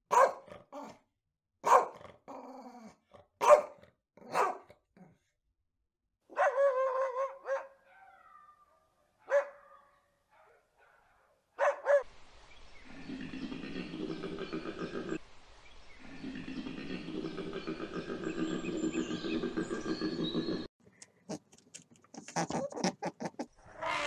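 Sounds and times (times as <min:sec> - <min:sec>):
dog barking: 0:00.1 - 0:00.5, 0:01.6 - 0:02.0, 0:03.4 - 0:04.8, 0:06.3 - 0:08.4, 0:09.2 - 0:12.1.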